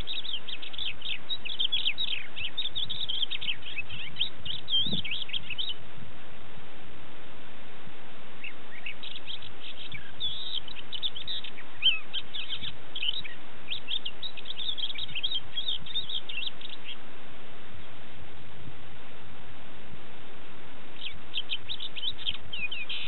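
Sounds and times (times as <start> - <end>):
lark singing: 0.0 - 5.8, 8.4 - 17.1, 21.0 - 23.0.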